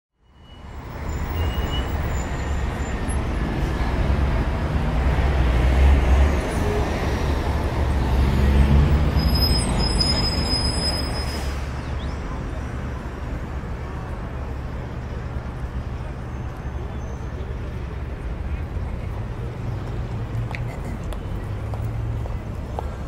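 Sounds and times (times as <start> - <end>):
low street rumble: 0.6 - 23.0.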